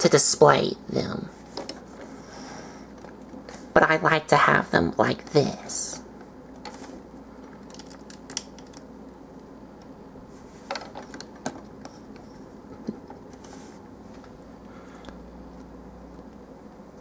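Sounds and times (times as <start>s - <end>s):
faint room hum: 0.0s - 17.0s.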